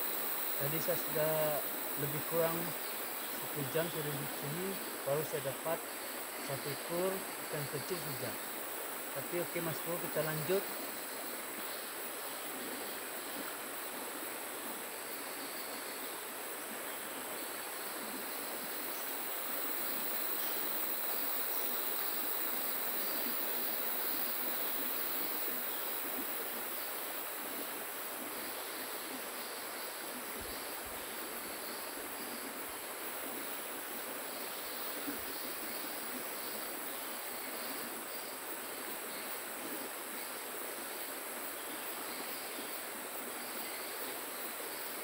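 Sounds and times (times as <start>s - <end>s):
river water rushing: 0.0s - 15.3s.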